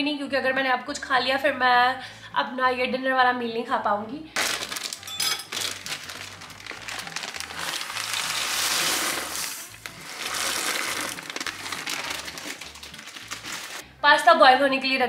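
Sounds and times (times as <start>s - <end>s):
soft background music: 0.0s - 15.0s
plastic bag crinkling: 4.4s - 13.8s
water boiling in pot: 7.0s - 13.8s.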